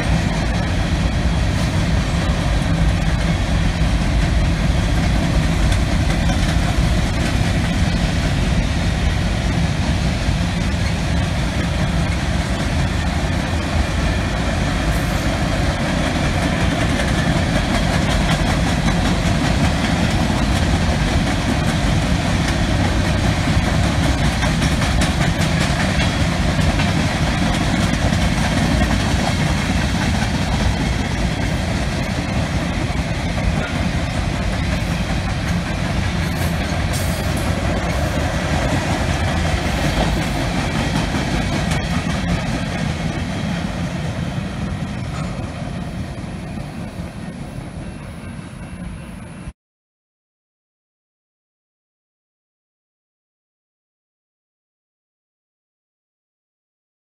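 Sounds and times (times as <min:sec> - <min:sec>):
freight train wheels on rails: 0:00.0 - 0:49.5.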